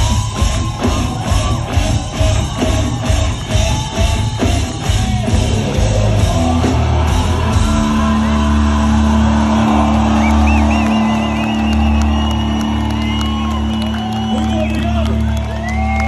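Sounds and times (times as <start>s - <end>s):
distorted guitars: 0.0s - 11.3s
live rock band playing: 0.0s - 15.6s.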